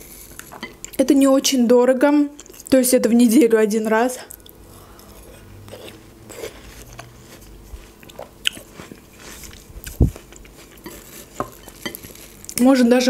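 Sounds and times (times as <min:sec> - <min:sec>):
chewing watermelon: 0:04.3 - 0:12.3.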